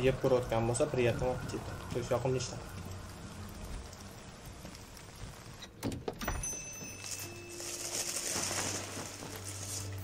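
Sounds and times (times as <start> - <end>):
faint steady tones: 0.0 - 5.6
rain on a city street: 0.0 - 10.0.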